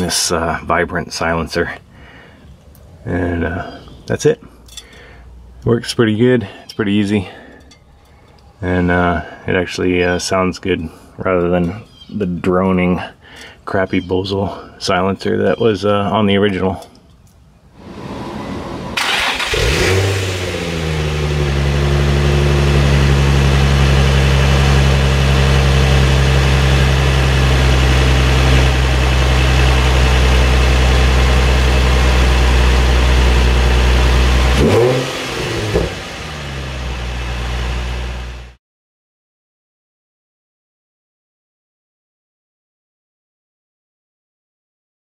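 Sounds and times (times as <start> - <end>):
car engine starting and idling: 17.8 - 38.6
engine revving: 17.8 - 38.6.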